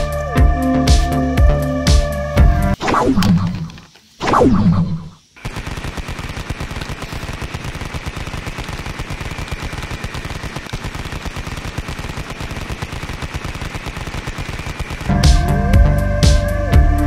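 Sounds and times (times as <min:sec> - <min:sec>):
machine-gun rattle: 0:05.4 - 0:15.1.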